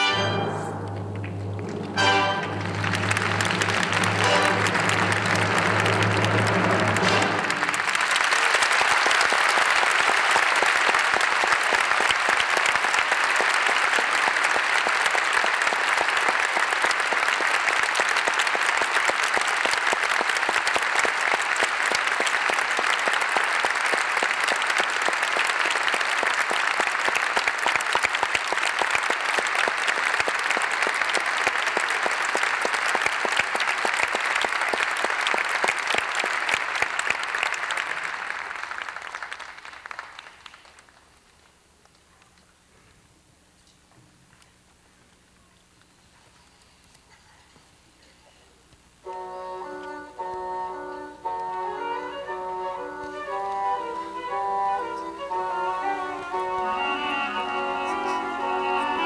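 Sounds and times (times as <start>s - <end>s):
music: 0.0s - 7.9s, 49.0s - 59.0s
audience applauding: 1.2s - 41.4s.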